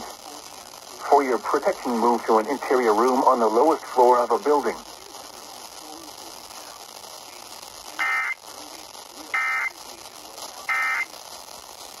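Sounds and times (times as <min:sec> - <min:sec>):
low hiss: 0:00.0 - 0:12.0.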